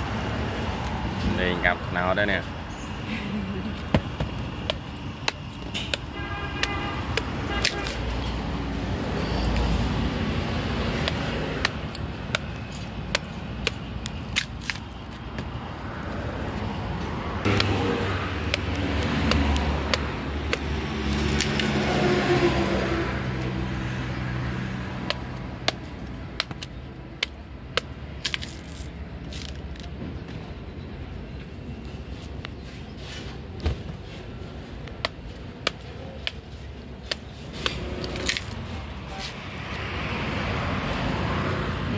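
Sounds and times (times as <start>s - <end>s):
knife chopping fruit husks: 4.0s - 8.0s, 10.9s - 14.8s, 17.5s - 21.8s, 25.0s - 28.8s, 35.0s - 38.5s
vehicle engine passing: 15.6s - 25.7s.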